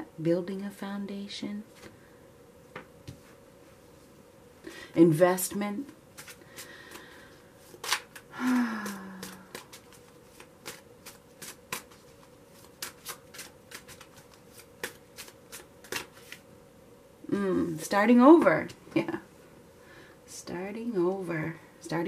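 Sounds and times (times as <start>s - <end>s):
cards being shuffled: 6.1s - 16.4s
low hum of a voice: 17.2s - 19.3s.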